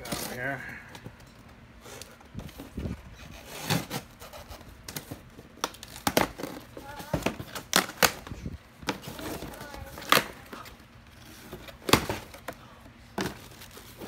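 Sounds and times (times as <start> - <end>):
boxes knocking and thudding: 3.6 - 8.2, 11.4 - 14.0.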